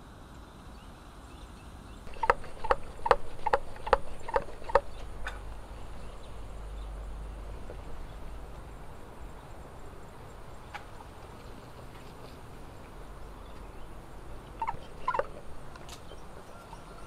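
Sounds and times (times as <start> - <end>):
steady background hiss: 0.0 - 17.0
animal call: 2.1 - 7.3, 14.5 - 17.0.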